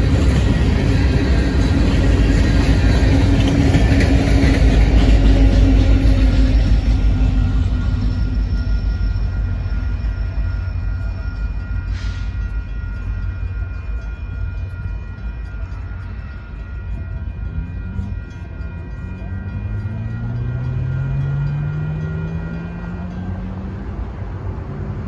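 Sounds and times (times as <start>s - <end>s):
crossing warning bell ringing: 0.0s - 25.0s
low train rumble: 0.0s - 25.0s
rising engine tone: 17.4s - 25.0s.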